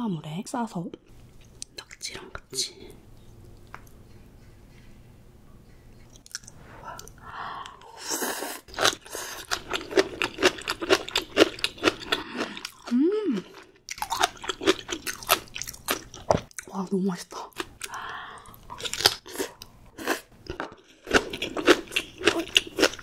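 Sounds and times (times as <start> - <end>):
crunchy chewing: 8.6 - 16.7, 17.5 - 23.0
person humming: 12.8 - 13.6.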